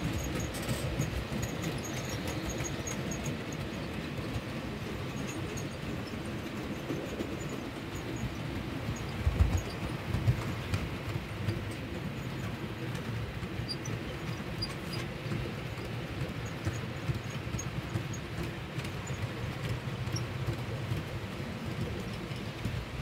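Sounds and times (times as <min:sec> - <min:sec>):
model train rumbling past: 0:00.0 - 0:23.0
rail joint clicks: 0:00.0 - 0:23.0.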